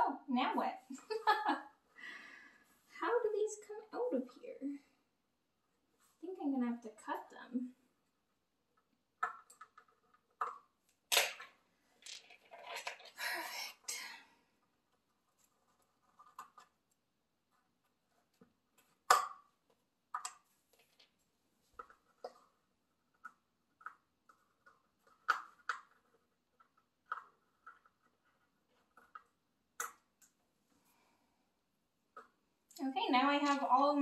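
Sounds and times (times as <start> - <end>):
plastic clicks and taps: 20.1 - 21.1.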